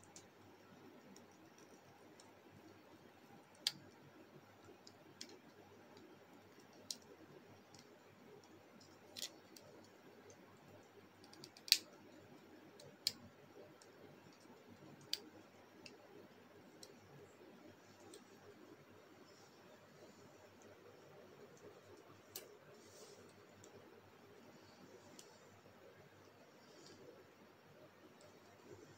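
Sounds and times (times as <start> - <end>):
plastic toy parts clicking: 3.5 - 4.0, 4.6 - 10.4, 11.2 - 16.0.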